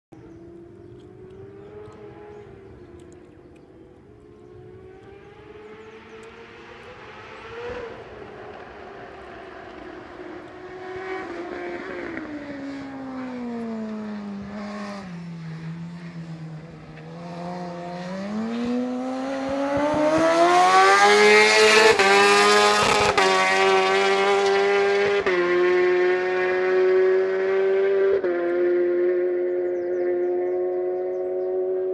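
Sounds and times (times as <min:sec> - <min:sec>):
quick gear changes: 0:00.2 - 0:10.7
motorcycle engine echoing: 0:00.2 - 0:31.9.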